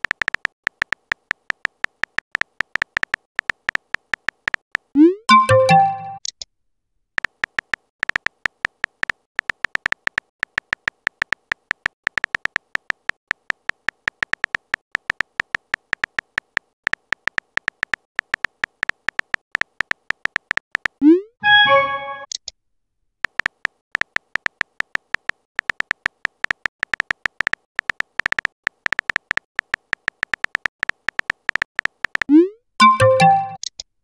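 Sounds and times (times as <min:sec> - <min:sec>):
phone keyboard typing clicks: 0:00.0 - 0:06.4, 0:07.2 - 0:21.0, 0:23.2 - 0:33.8
rising message-sent chime: 0:05.3 - 0:06.2, 0:21.4 - 0:22.2.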